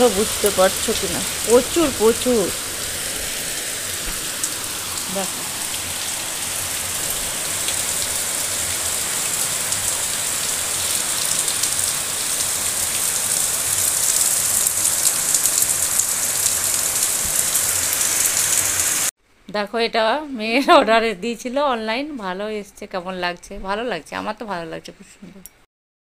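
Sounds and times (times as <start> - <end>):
torrential rain falling: 0.0 - 19.1.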